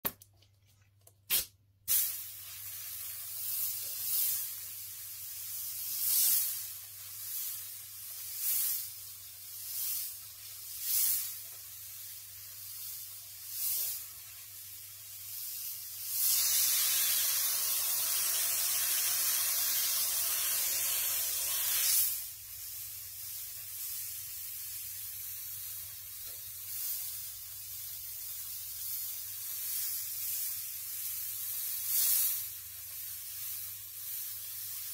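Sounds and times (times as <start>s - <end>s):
airbrush spraying: 1.3s - 34.9s.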